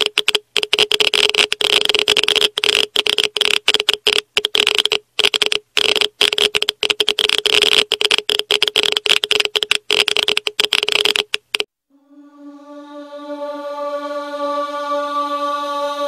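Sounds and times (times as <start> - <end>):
crackling static: 0.0 - 11.7
choral chant: 11.9 - 16.0.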